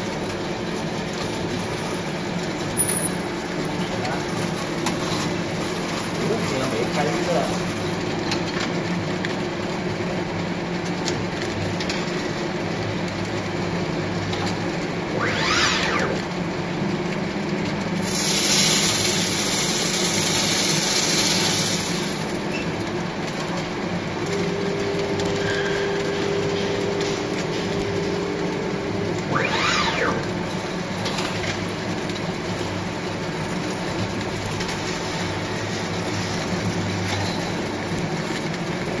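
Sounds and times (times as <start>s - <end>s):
machine motors humming: 11.4s - 17.9s, 21.5s - 38.9s.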